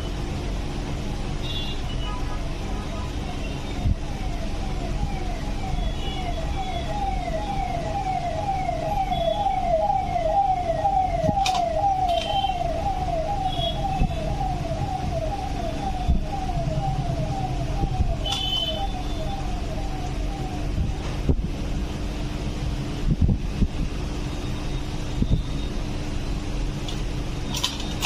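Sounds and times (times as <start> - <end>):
emergency siren falling sweep: 3.2 - 21.6.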